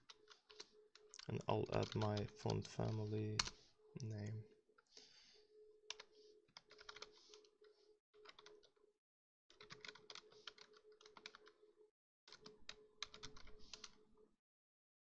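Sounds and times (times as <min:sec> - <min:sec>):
typing on a computer keyboard: 0:00.0 - 0:03.5, 0:05.9 - 0:08.8, 0:09.5 - 0:11.6, 0:12.3 - 0:14.0.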